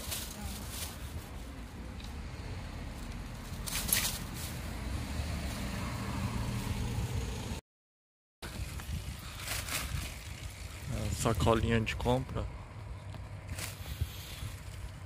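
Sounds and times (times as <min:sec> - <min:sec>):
passing street traffic: 0:00.0 - 0:07.6, 0:08.5 - 0:15.0
wind rumble on microphone: 0:08.4 - 0:15.0.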